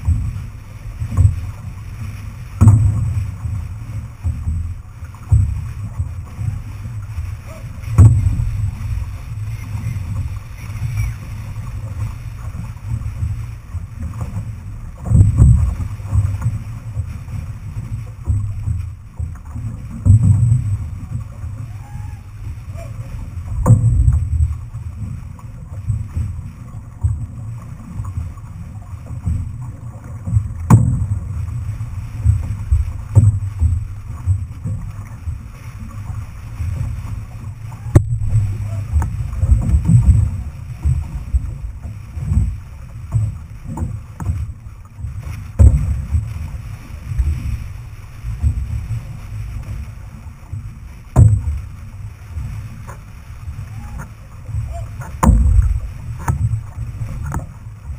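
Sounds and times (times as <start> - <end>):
water washing along hull: 0.0 - 57.9
wind buffeting microphone: 0.0 - 57.9
sharp knocks: 55.2 - 56.5.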